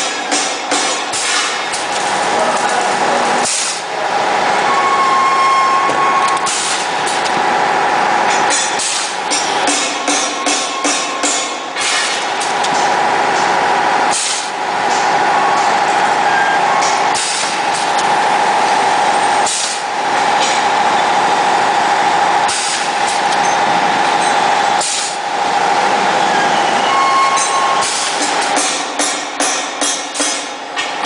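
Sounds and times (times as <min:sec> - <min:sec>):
pneumatic hiss and clack: 0:00.0 - 0:02.8, 0:03.4 - 0:03.9, 0:06.3 - 0:07.4, 0:08.3 - 0:13.5, 0:14.1 - 0:15.8, 0:16.8 - 0:18.1, 0:19.4 - 0:20.6, 0:22.4 - 0:23.3, 0:24.7 - 0:25.2, 0:27.4 - 0:31.0
machine whine: 0:00.0 - 0:29.0.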